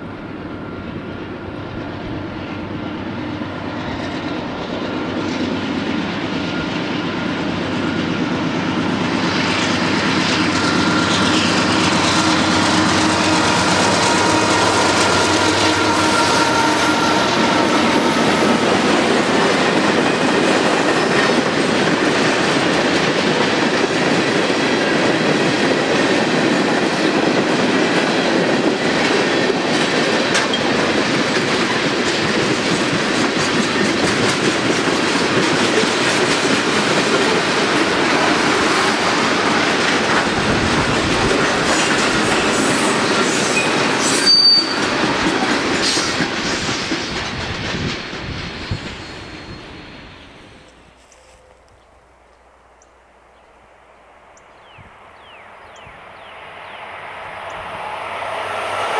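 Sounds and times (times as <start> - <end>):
freight train wheels rumbling: 0.0 - 51.8, 54.5 - 58.9
wheels clicking over rail joints: 9.2 - 49.0
high wheel squeal: 10.3 - 19.1, 42.4 - 45.0, 48.6 - 51.6.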